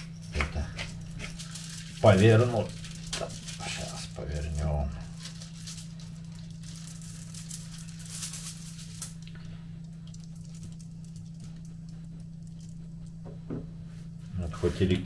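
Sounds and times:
low electrical hum: 0.0s - 15.0s
pepper mill grinding: 0.8s - 9.4s.

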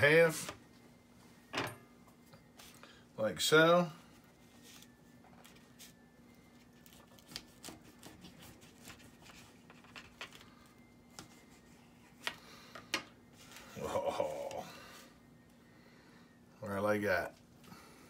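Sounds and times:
knife sawing through sandwich: 7.2s - 9.3s.

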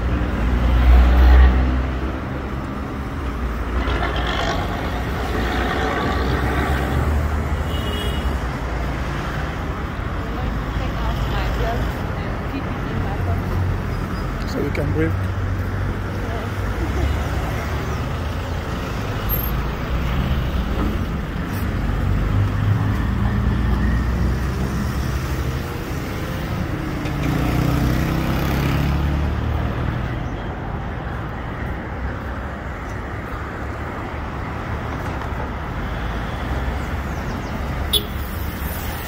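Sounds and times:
cars passing: 0.0s - 39.0s.

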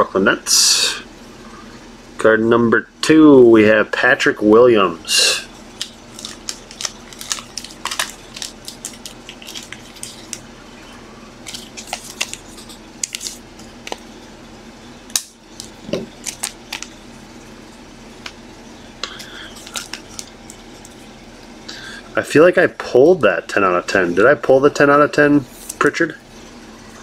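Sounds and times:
plastic card sleeves clicking: 5.8s - 10.4s.

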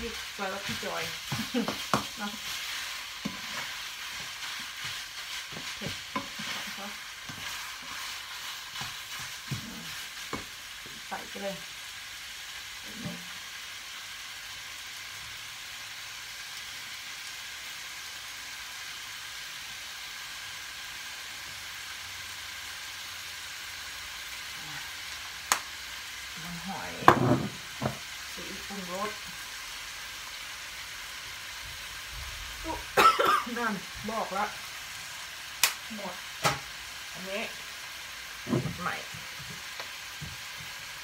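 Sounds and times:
spatula scraping a pan: 0.0s - 10.5s
meat sizzling in a frying pan: 0.0s - 41.0s.

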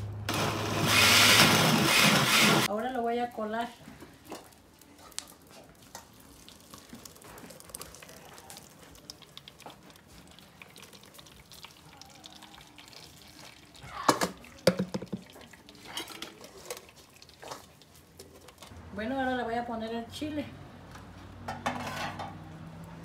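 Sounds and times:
sauce trickling and dripping: 4.4s - 18.7s.

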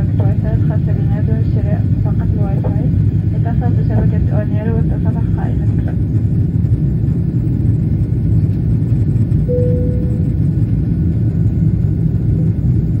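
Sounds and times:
airliner cabin rumble: 0.0s - 13.0s
short steady tone: 9.5s - 10.5s.

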